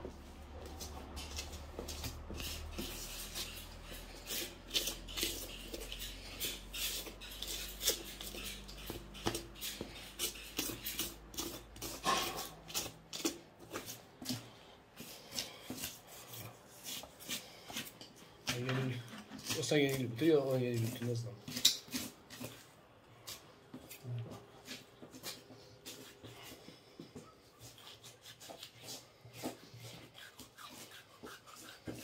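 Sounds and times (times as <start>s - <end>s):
knife cutting and scraping hide: 0.6s - 32.0s.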